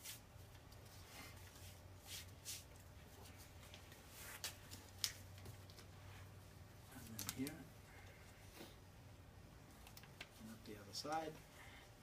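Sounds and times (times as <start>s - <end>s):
tape rustling and crackling: 0.0s - 8.8s, 9.6s - 11.6s.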